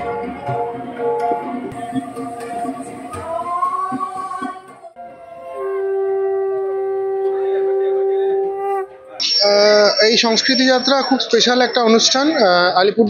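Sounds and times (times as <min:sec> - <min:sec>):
tabla drumming: 0:00.0 - 0:05.0
women singing: 0:01.7 - 0:06.4.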